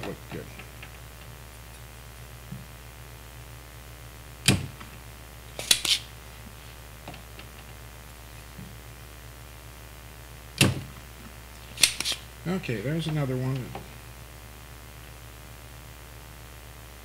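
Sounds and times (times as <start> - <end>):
desoldering pump snap: 4.4 - 4.9, 5.6 - 6.1, 11.6 - 12.3.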